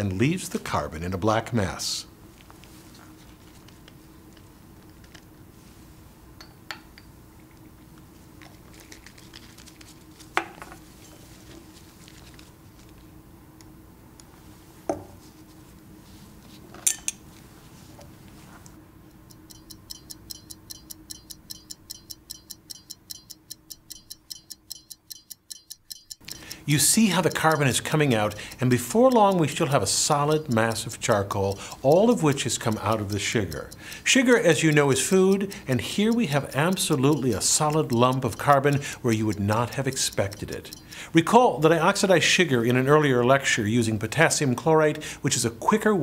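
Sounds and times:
fast stopwatch ticking: 19.1s - 43.5s.

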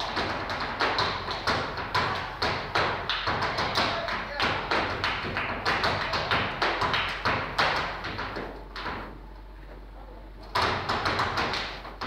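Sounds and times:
dance shoes tapping and stamping: 0.0s - 9.2s, 10.5s - 12.0s.

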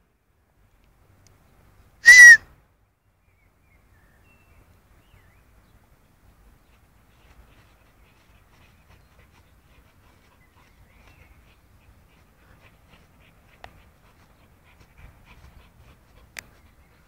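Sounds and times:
dog panting: 6.6s - 17.0s.

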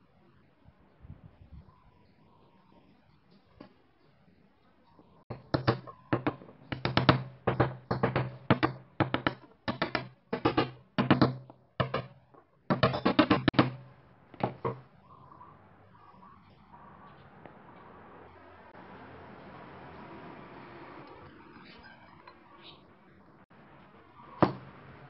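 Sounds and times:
hammer tapping steel punch: 5.3s - 13.8s.

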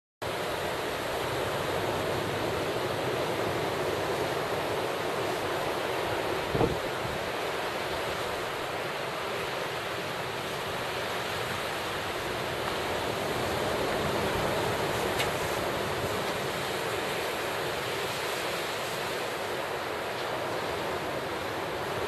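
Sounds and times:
small surf breaking on beach: 0.3s - 22.0s
strong wind blowing: 4.7s - 7.4s.

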